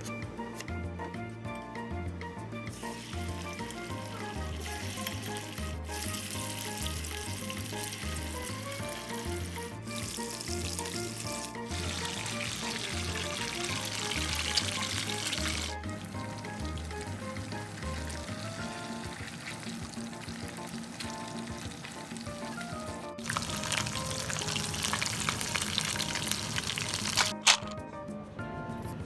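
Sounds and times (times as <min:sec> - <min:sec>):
background music with bass line: 0:00.0 - 0:29.0
chicken deep-frying in oil: 0:02.7 - 0:27.4.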